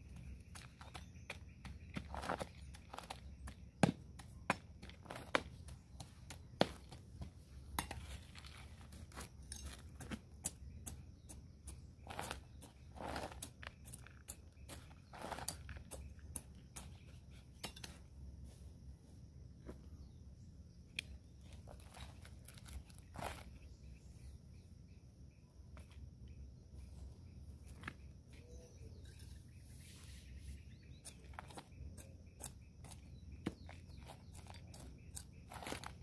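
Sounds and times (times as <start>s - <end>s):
trowel scraping potting soil: 0.0s - 4.2s, 4.8s - 18.2s, 21.0s - 24.0s, 27.9s - 36.0s.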